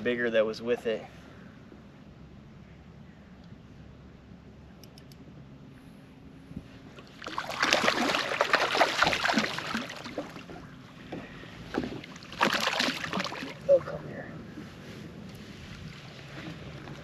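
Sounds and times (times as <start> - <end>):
fish thrashing and splashing: 7.0 - 10.6, 11.7 - 13.7.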